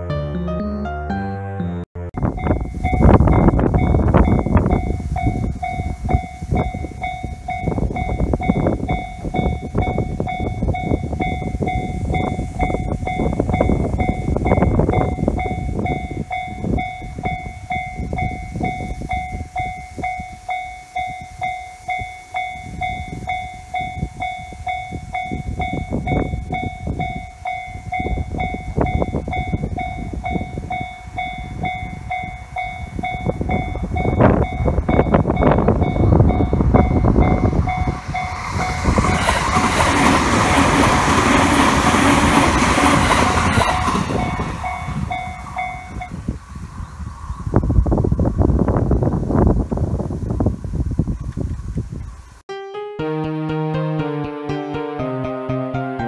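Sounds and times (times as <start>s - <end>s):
level crossing bell dinging: 2.2s - 39.2s
train passing with clicking wheels: 2.3s - 46.5s.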